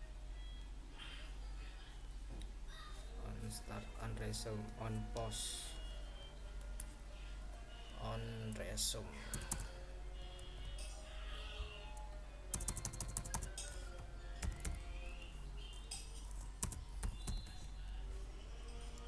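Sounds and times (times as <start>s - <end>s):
faint background music: 0.0s - 19.0s
keyboard typing: 9.3s - 9.7s, 12.5s - 17.7s.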